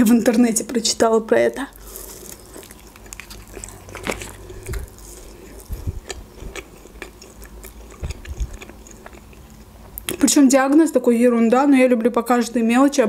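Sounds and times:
chewing food: 1.7 - 10.4
soft low jaw thumps: 5.7 - 6.3.

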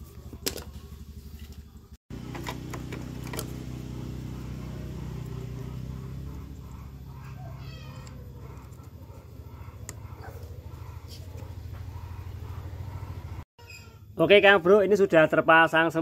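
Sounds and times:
animal cry: 4.0 - 14.1.

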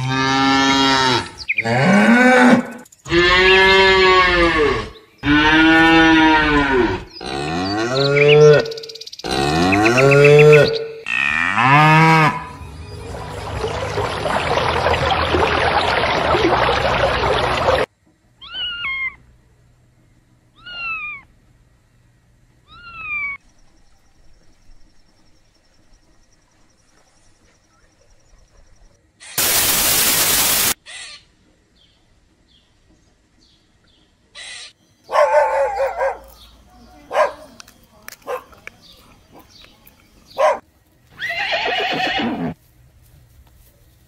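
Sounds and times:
burst of hiss: 29.2 - 30.8.

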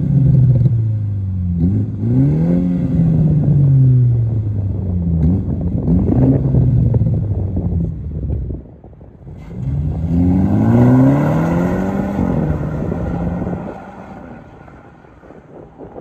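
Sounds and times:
car engine accelerating hard: 9.3 - 16.0.

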